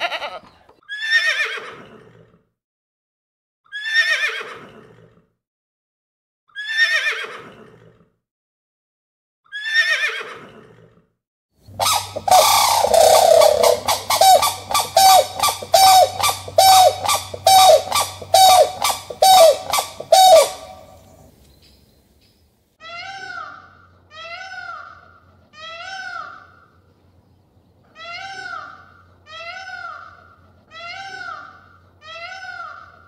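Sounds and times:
horse whinnying: 0:06.6 - 0:07.7
cranes honking: 0:11.8 - 0:21.2.

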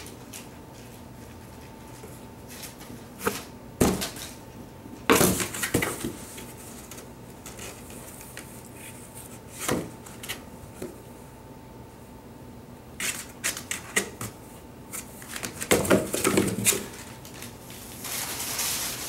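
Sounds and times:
packing paper crackling: 0:16.6 - 0:19.0.

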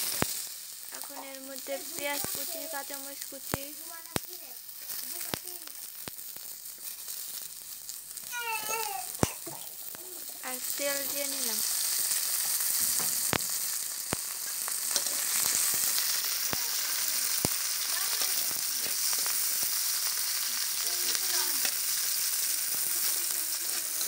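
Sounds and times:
food sizzling in hot oil: 0:00.0 - 0:24.0
metal spatula clicking on pan: 0:14.9 - 0:15.7.

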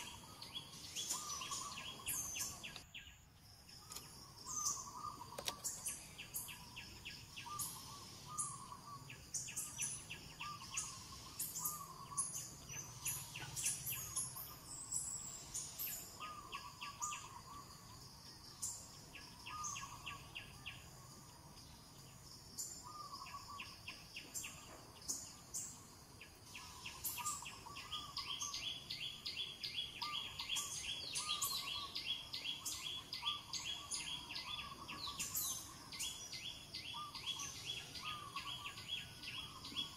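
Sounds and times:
high bird chirps: 0:00.0 - 0:03.0
insects trilling: 0:00.0 - 0:39.9.

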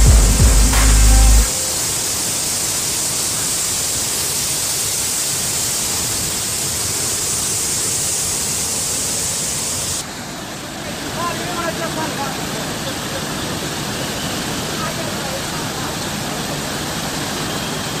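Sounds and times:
music track: 0:00.0 - 0:02.1
floodwater rushing: 0:00.0 - 0:18.0.

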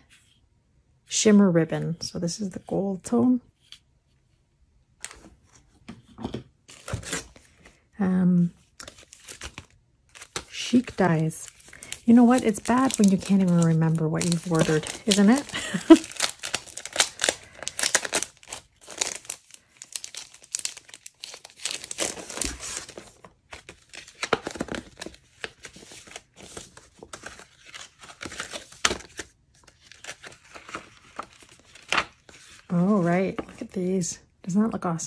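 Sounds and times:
plastic packaging crinkling: 0:08.7 - 0:33.6.

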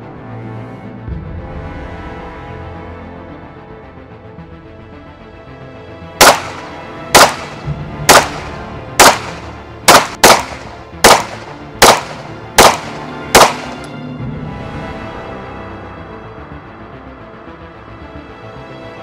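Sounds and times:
background music: 0:00.0 - 0:19.0
pistol shots: 0:06.2 - 0:13.9.

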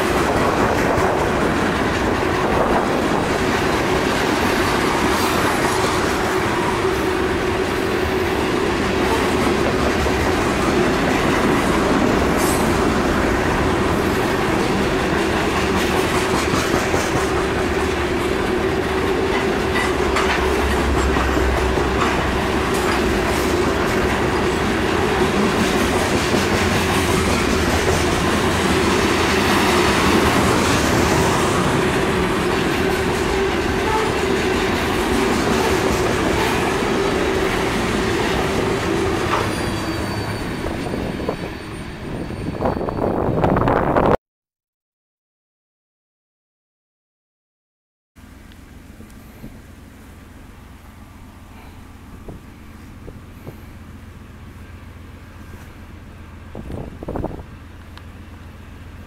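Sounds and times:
train wheels clacking over rail joints: 0:00.0 - 0:41.2
steady train hum: 0:00.0 - 0:44.2, 0:48.2 - 0:59.0.

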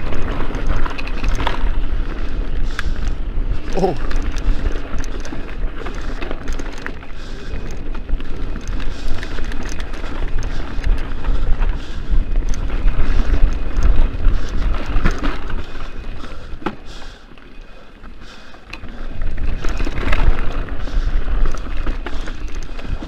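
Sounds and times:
wind buffeting microphone: 0:00.0 - 0:16.9
bike rattling over loose stones: 0:00.0 - 0:23.0.

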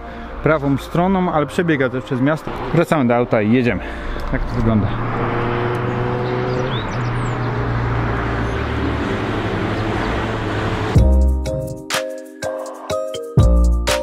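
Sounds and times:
car running noise: 0:04.0 - 0:11.0
loud music: 0:10.9 - 0:14.0.

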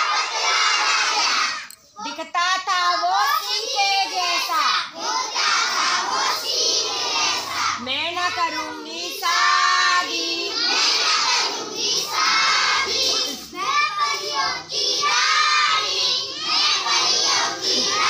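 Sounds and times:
children shouting and chanting: 0:00.0 - 0:18.0.

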